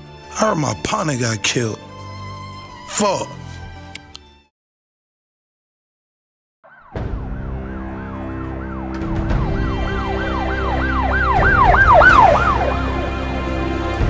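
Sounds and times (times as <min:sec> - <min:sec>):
emergency siren yelping: 0:06.7 - 0:13.9.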